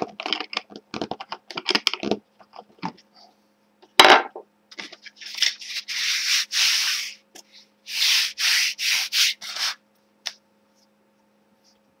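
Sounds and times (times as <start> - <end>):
sanding block rasping strokes: 5.7 - 7.2, 7.9 - 9.8.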